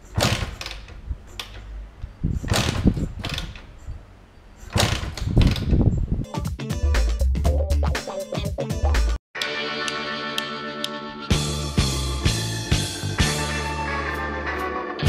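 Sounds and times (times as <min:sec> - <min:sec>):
music: 0:06.2 - 0:15.0.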